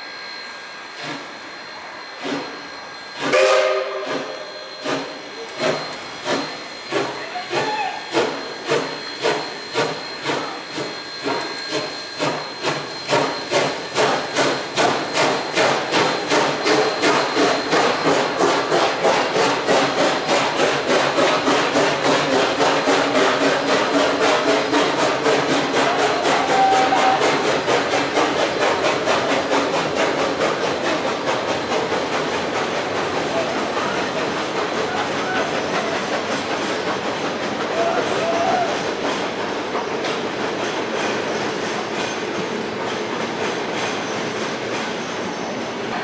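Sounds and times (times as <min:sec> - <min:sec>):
steam locomotive whistle: 0:00.0 - 0:28.1, 0:34.9 - 0:35.6, 0:37.7 - 0:38.9
steam locomotive exhaust chuffs: 0:00.0 - 0:46.0.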